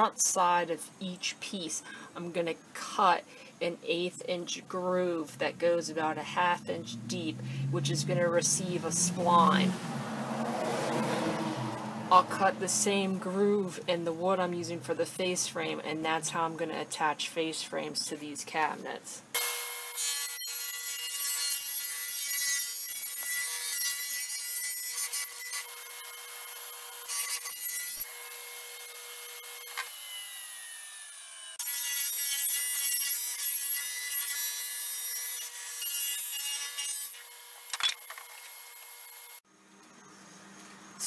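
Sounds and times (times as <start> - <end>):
table saw cutting wood: 5.4 - 13.5, 19.4 - 39.4.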